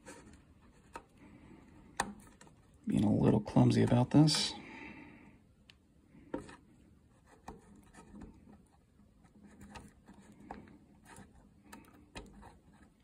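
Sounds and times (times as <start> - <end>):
light clicks and rubbing: 6.3 - 13.0.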